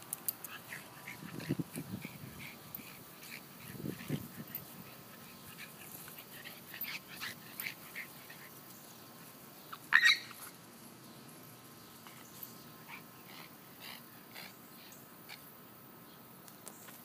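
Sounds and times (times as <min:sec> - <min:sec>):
puppy and cat crying: 0:09.9 - 0:10.4.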